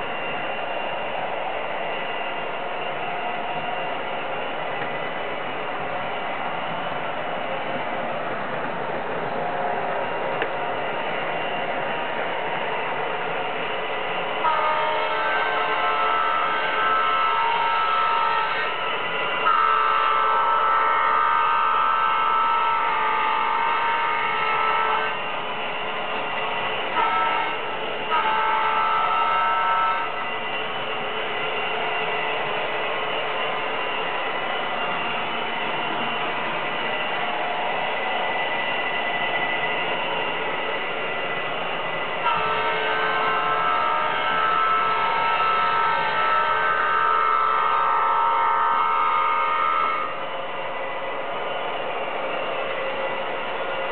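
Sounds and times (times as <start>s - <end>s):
model train horn blasts: 14.3s - 25.4s, 26.8s - 31.0s, 42.1s - 50.3s.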